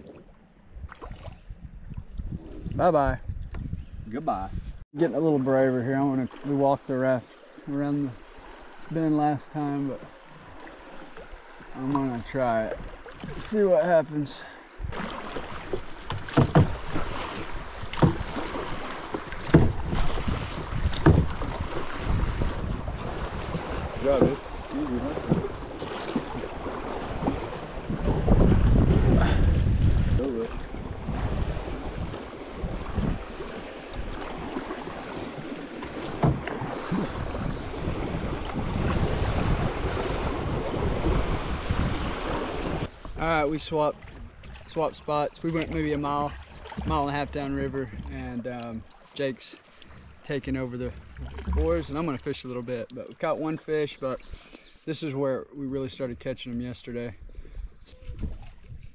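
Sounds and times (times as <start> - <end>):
wind rumbling on microphone: 0.0 - 4.8, 14.7 - 44.7, 57.1 - 58.9
moving water: 0.0 - 58.9
oar strokes knocking and splashing: 9.9 - 14.0, 14.8 - 54.4
river water rushing: 14.6 - 28.3, 30.6 - 42.9.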